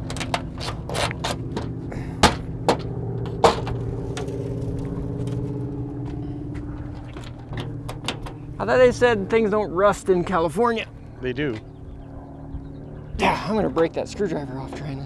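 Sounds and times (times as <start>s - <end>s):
screwdriver clicking and scraping metal: 0.0s - 1.4s
low engine hum: 0.0s - 15.0s.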